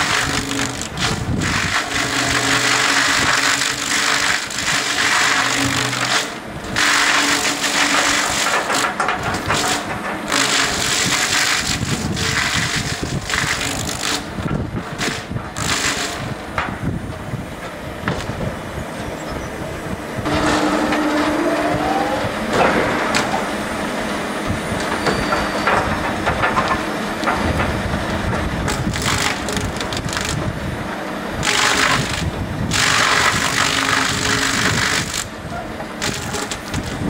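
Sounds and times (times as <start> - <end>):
log milling chipping and grinding: 0.0 - 37.0
machinery running: 0.0 - 37.0
rising whine: 18.6 - 28.1
humming tone: 19.2 - 28.0.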